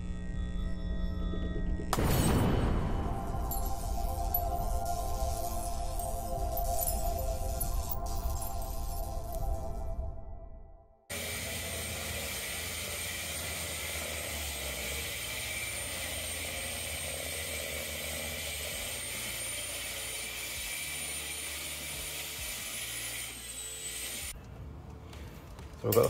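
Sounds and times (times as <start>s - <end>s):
power drill boring into brick: 11.1s - 24.4s.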